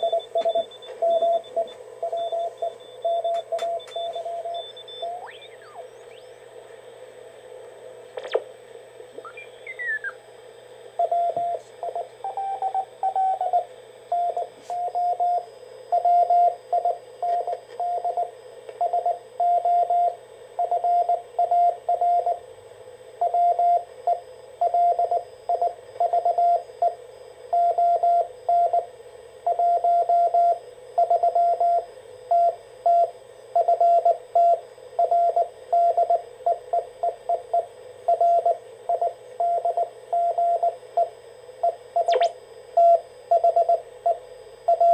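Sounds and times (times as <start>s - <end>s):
morse code beep tone: 0.0s - 6.4s, 9.2s - 10.2s, 42.0s - 43.7s
faint radio band hiss: 3.4s - 13.0s.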